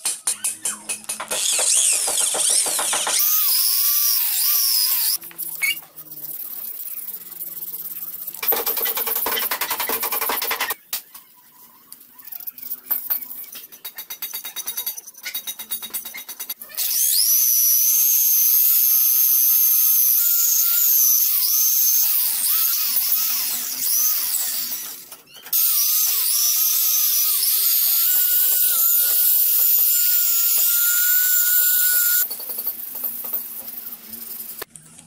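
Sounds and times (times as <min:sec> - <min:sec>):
angle grinder whining on metal: 0:01.1 - 0:05.9, 0:16.8 - 0:32.3.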